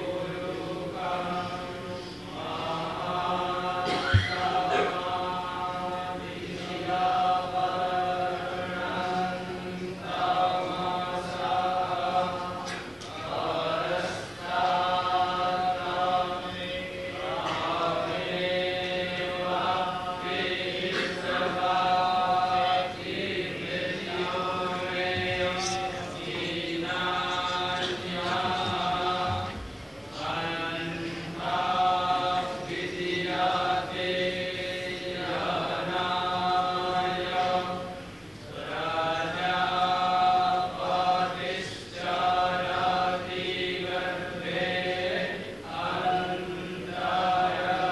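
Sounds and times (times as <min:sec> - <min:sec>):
men chanting: 0:00.0 - 0:37.9, 0:38.5 - 0:47.9.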